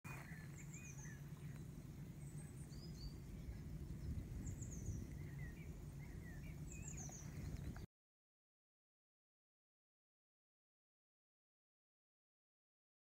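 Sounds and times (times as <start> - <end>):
low rumble: 0.1 - 7.9
songbirds chirping: 0.1 - 7.9.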